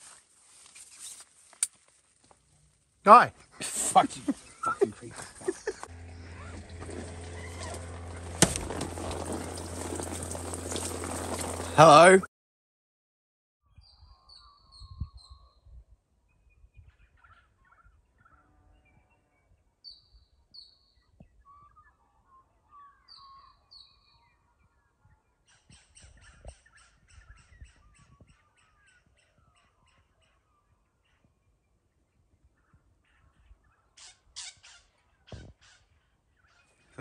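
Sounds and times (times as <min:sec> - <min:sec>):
birds singing and calling: 0:13.8 - 0:15.7, 0:16.3 - 0:31.3.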